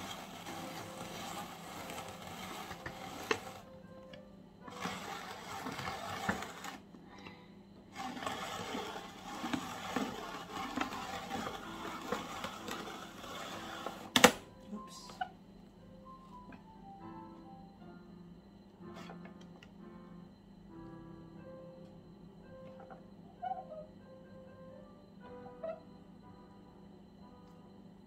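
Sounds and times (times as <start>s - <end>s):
spiralizer blade shaving cucumber: 0.0s - 3.7s, 4.7s - 6.8s, 7.9s - 14.3s.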